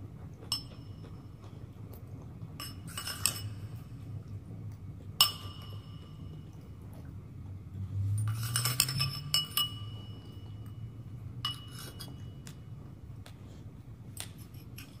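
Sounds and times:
clinks against glass bowl: 0:00.4 - 0:01.4, 0:02.6 - 0:03.9, 0:05.2 - 0:06.6, 0:08.1 - 0:12.7.

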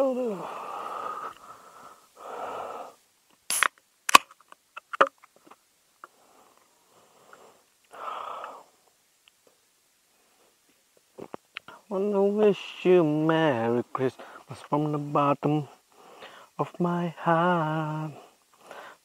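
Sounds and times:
breathy exhale: 0:00.4 - 0:03.0, 0:06.1 - 0:08.8, 0:15.9 - 0:16.6, 0:18.2 - 0:19.0
beer can cracking open: 0:03.5 - 0:05.6.

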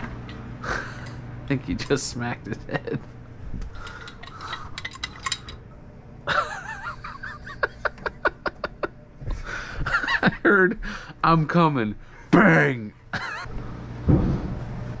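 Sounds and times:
person laughing: 0:02.4 - 0:03.1, 0:06.3 - 0:10.8, 0:13.1 - 0:13.5
metallic clinks and rattles: 0:03.8 - 0:05.6.

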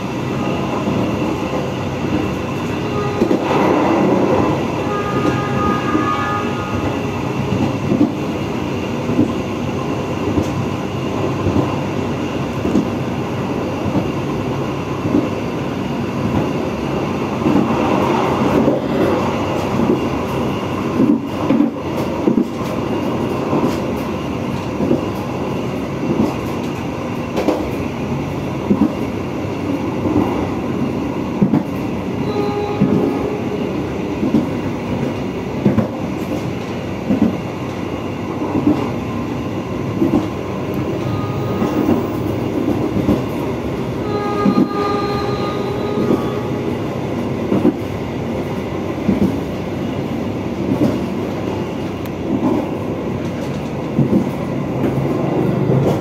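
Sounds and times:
train rumbling: 0:00.0 - 0:56.0
locomotive horn: 0:02.8 - 0:07.2, 0:32.2 - 0:33.8, 0:41.0 - 0:42.1, 0:44.0 - 0:46.8.

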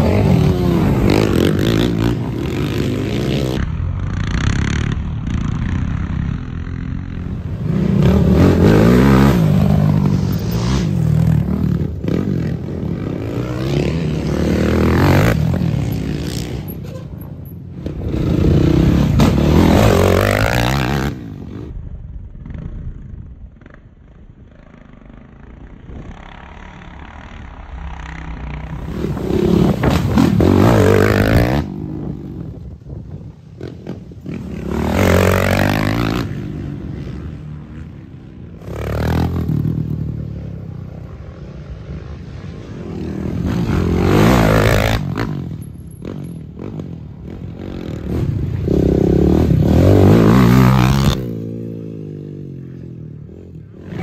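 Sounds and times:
quad engines revving past: 0:00.0 - 0:21.8, 0:24.5 - 0:54.0.

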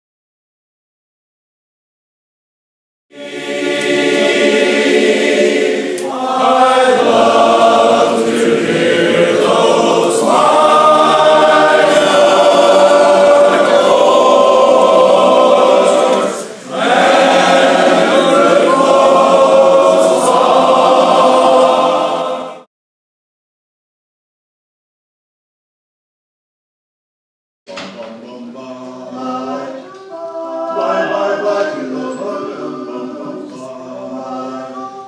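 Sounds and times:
men's chorus singing a cappella: 0:03.1 - 0:22.7, 0:27.7 - 0:35.0.

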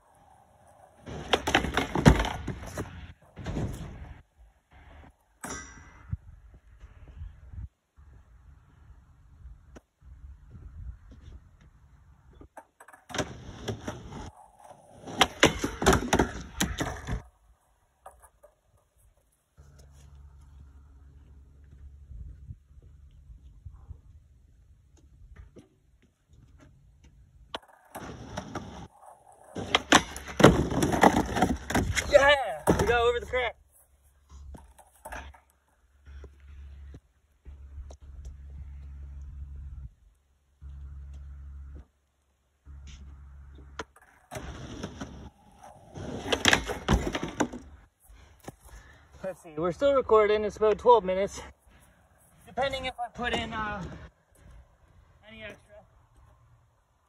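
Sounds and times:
skateboard wheels rolling on concrete: 0:00.0 - 0:57.0
skateboard wheels clattering on wood: 0:00.2 - 0:04.0, 0:12.5 - 0:19.0, 0:27.6 - 0:33.3, 0:43.7 - 0:47.8.

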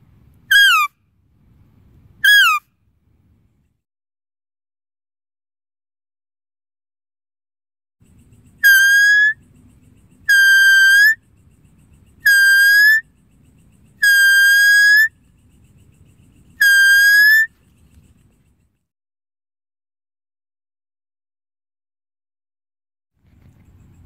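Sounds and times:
whistle-like deer calls: 0:00.5 - 0:01.0, 0:02.2 - 0:02.7, 0:08.6 - 0:09.4, 0:10.2 - 0:11.2, 0:12.2 - 0:13.1, 0:14.0 - 0:15.2, 0:16.6 - 0:17.5.

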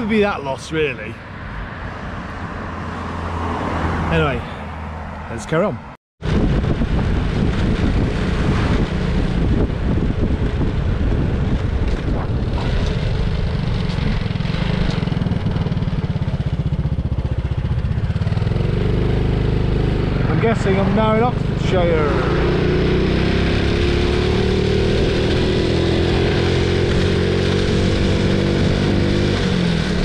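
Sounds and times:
motorbike engine running: 0:06.2 - 0:30.0.

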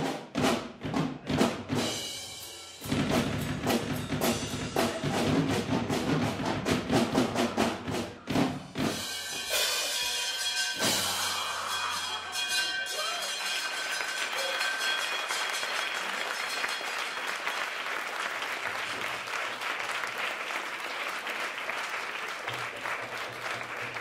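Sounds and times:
audience applauding: 0:11.4 - 0:24.0.

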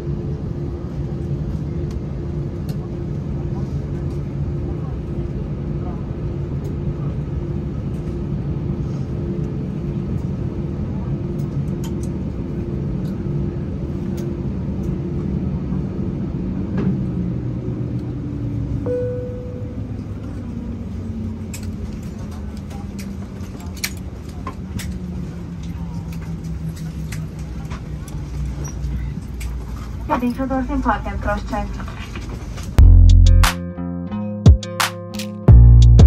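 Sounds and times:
airplane cabin hum: 0:00.0 - 0:33.0
brief single tone: 0:18.8 - 0:20.1.

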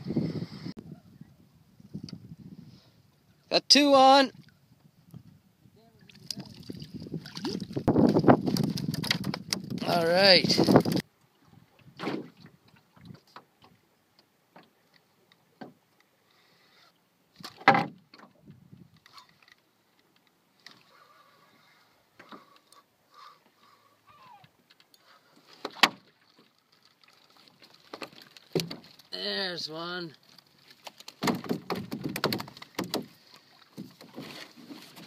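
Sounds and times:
sharp knocks: 0:31.2 - 0:33.1.

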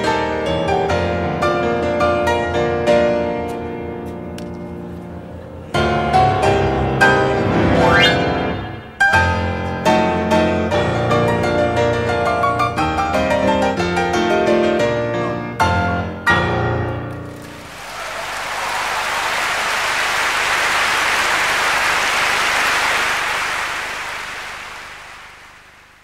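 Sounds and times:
piano chords: 0:05.6 - 0:17.9
audience applause: 0:17.2 - 0:26.0.

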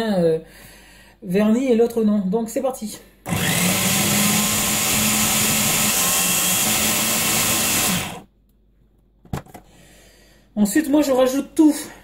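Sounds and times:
food processor chopping: 0:03.3 - 0:08.3.

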